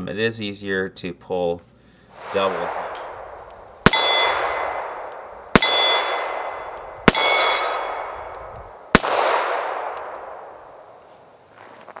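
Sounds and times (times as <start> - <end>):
steel target clanging: 2.2 - 8.6
revolver shots: 2.2 - 11.0.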